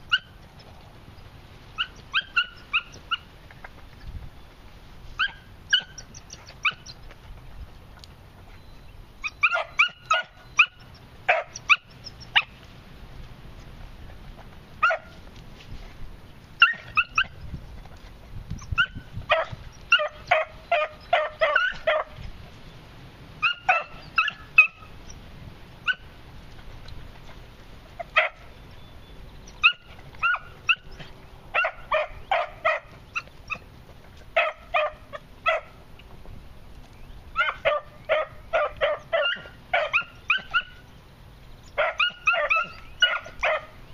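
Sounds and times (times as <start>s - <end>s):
puppies yipping and barking: 0.0s - 12.7s, 13.5s - 15.4s, 16.4s - 22.4s, 23.3s - 25.2s, 25.8s - 36.0s, 36.9s - 43.9s.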